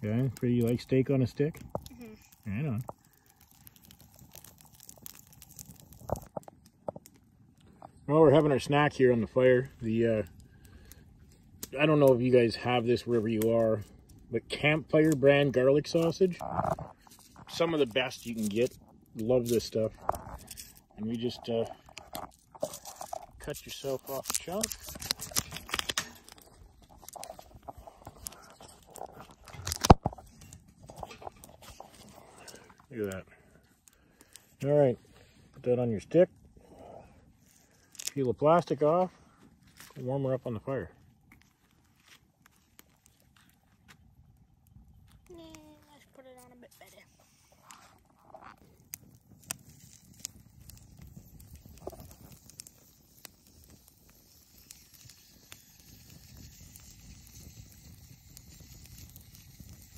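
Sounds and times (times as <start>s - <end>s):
sharp pops of fire: 0.0s - 34.8s, 42.1s - 59.9s
campfire crackling: 0.0s - 59.9s.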